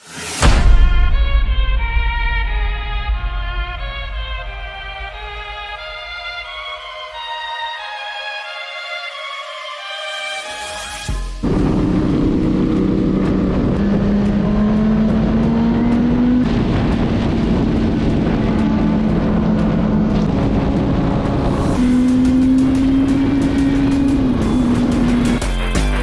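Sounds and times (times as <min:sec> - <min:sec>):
wind rush on microphone: 0:11.4 - 0:25.3
motorcycle engine at speed: 0:11.4 - 0:26.0.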